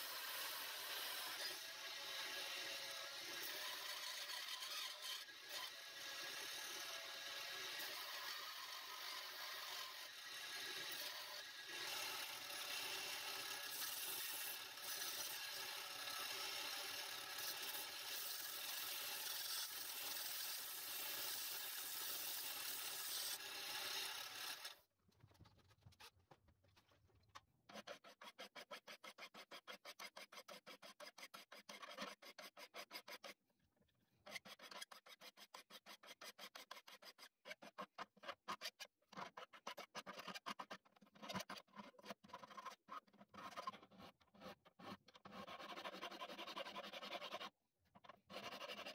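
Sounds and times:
belt grinder grinding steel: 0:00.0 - 0:24.8
hand file rasping wood: 0:27.7 - 0:33.4, 0:34.3 - 0:42.6, 0:43.3 - 0:47.6, 0:48.3 - 0:48.9.

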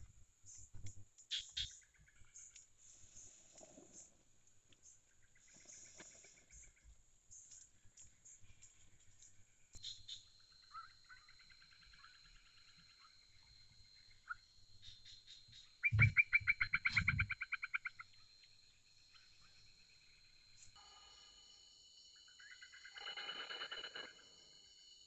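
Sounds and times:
rapid repeated wildlife call: 0:01.3 - 0:04.1, 0:04.8 - 0:25.0
high insect tone: 0:04.8 - 0:25.0.

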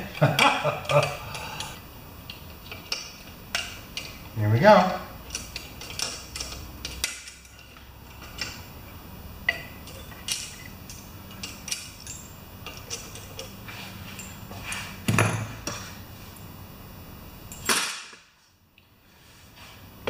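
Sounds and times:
light metallic clicks and clinks: 0:05.2 - 0:08.6, 0:09.5 - 0:14.9.

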